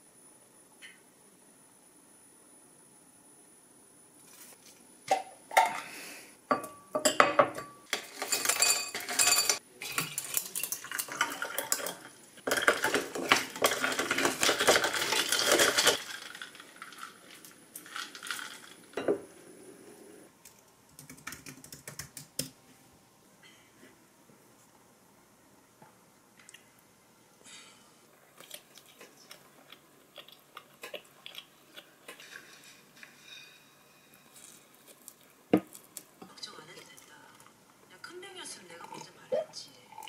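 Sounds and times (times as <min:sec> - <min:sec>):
ice and spoon clinking in glass: 0:06.5 - 0:16.9
drink pouring over ice: 0:09.2 - 0:18.9
computer keyboard clicking: 0:20.5 - 0:22.5.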